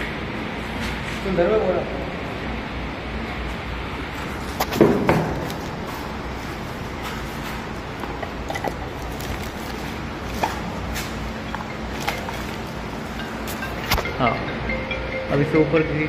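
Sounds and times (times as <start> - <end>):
steady low hum: 0.0 - 16.0
plastic wrapping rustling: 5.4 - 13.8.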